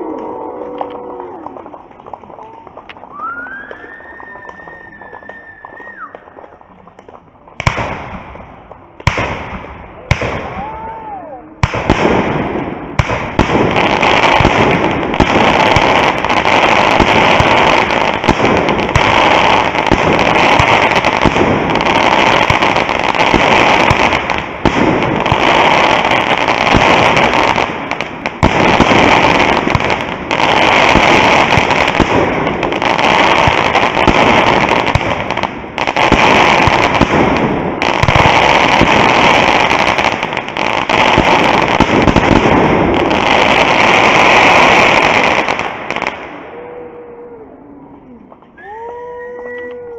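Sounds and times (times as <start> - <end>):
firework crackle: 0.0 - 46.5
firework bangs: 1.6 - 11.0, 11.6 - 46.5
firework whistle: 3.0 - 6.5.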